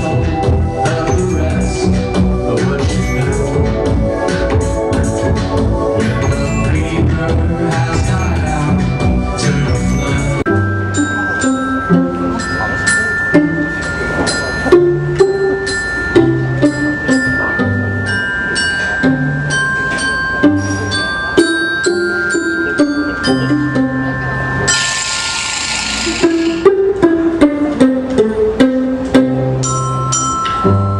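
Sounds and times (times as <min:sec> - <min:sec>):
mallet percussion ringing notes: 0:00.0 - 0:30.9
low bowed cello notes: 0:08.8 - 0:30.9
high violin notes: 0:10.5 - 0:30.9.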